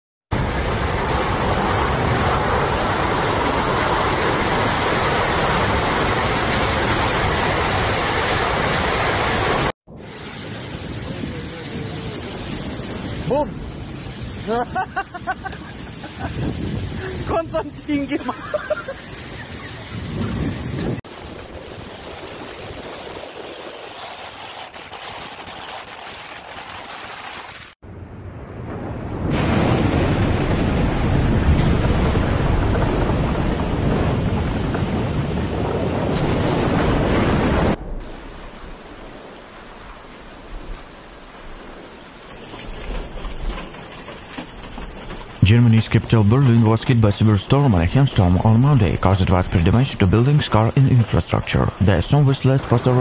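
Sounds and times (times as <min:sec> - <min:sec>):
strong wind: 0:00.3 - 0:53.0
heavy driving rain: 0:00.4 - 0:23.2, 0:35.1 - 0:53.0
steady rain: 0:00.4 - 0:27.8, 0:34.7 - 0:53.0
wind buffeting microphone: 0:15.2 - 0:27.0.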